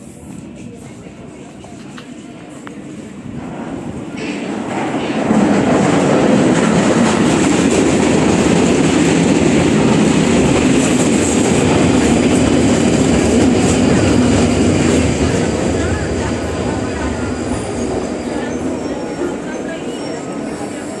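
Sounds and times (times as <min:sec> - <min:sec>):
train wheels rumbling on rails: 0:00.0 - 0:21.0.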